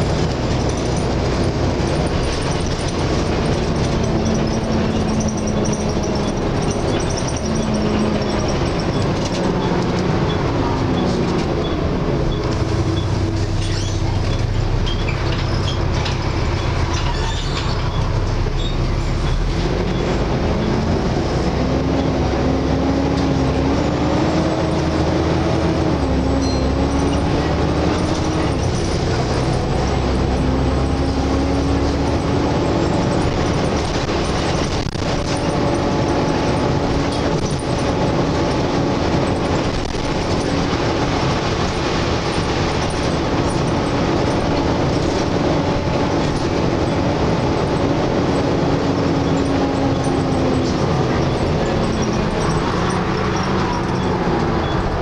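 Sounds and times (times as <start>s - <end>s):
bus body knocks and rattles: 0.0s - 20.0s, 23.2s - 55.0s
bus engine whine and rumble: 0.0s - 55.0s.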